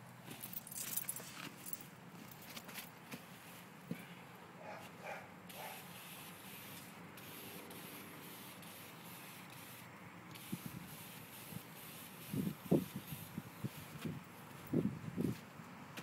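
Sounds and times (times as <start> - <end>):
paint sprayer hissing: 5.5 - 15.3.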